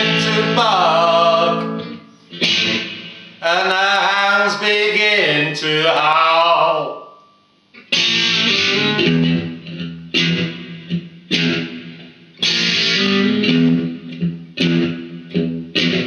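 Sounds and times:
person singing: 0.0 - 2.0, 3.4 - 7.0
electric guitar strummed chords: 0.0 - 6.0, 6.6 - 16.0.

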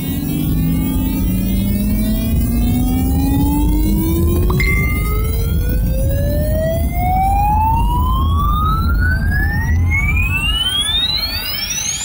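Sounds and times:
electronic tone gliding upward: 0.1 - 12.0
steady low rumble: 3.9 - 10.2.

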